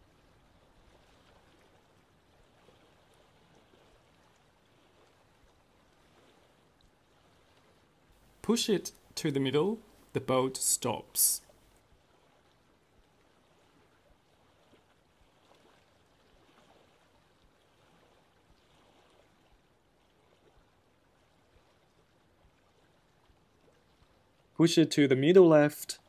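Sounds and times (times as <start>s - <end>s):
faint background hiss: 8.1s - 11.8s.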